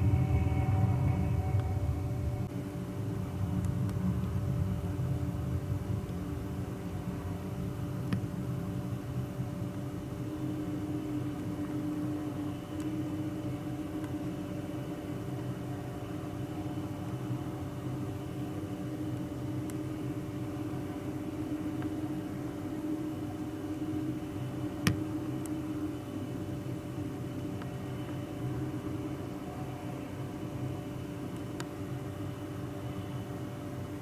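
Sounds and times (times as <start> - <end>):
jet engines idling: 0.0 - 8.3.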